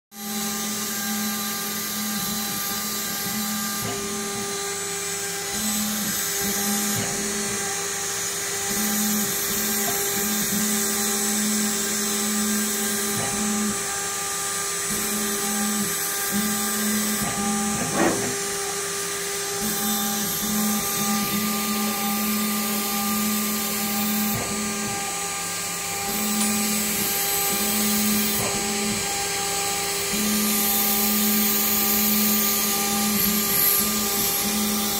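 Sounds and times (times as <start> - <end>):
router spindle high-pitched whine: 0.2 - 34.9.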